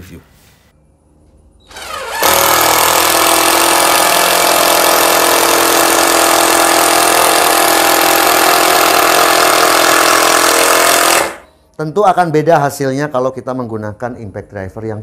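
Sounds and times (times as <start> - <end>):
impact driver driving screw: 1.7 - 11.4.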